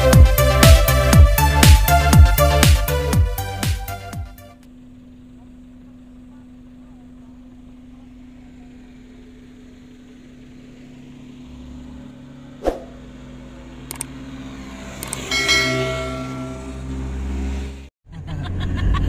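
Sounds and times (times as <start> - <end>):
steady low hum: 4.6 - 14.2
quick clicks: 13.8 - 14.1, 15.0 - 15.3
bright bell-like chime: 15.2 - 17.1.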